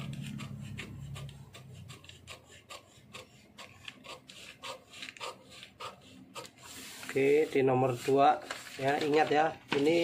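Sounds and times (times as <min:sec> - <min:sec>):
scissors snipping paper: 0:00.0 - 0:07.2
paper rustling: 0:06.4 - 0:10.0.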